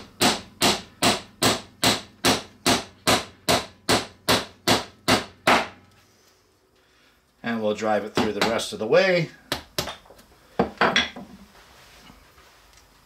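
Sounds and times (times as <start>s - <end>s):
wooden mallet striking wood: 0.0s - 5.8s.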